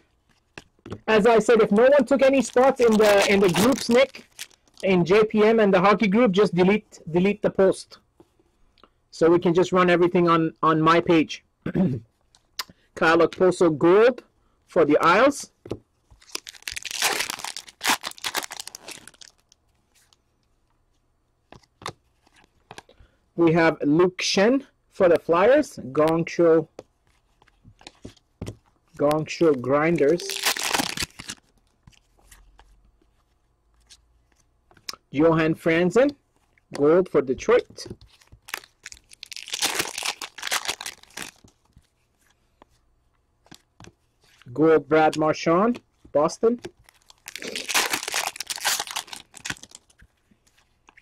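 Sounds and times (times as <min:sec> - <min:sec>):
cards being handled: 0:00.1 - 0:05.3, 0:26.8 - 0:34.9
foil wrapper tearing and crinkling: 0:02.1 - 0:04.8, 0:16.2 - 0:19.5, 0:30.2 - 0:31.4, 0:38.4 - 0:41.5, 0:46.8 - 0:50.0.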